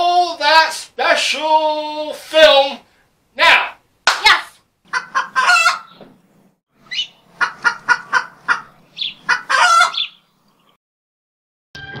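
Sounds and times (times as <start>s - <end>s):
chicken calling loudly: 4.9s - 6.0s, 6.8s - 10.2s
chicken clucking: 4.9s - 6.0s, 6.9s - 10.2s.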